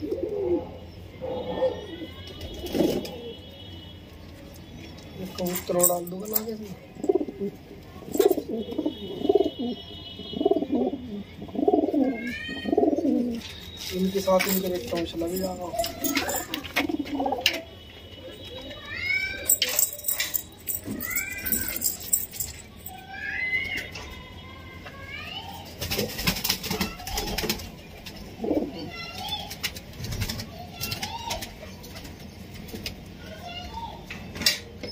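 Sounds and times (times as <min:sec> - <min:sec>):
pigeons cooing: 0:00.0 - 0:02.0, 0:07.0 - 0:13.5, 0:15.8 - 0:17.6, 0:28.4 - 0:28.9.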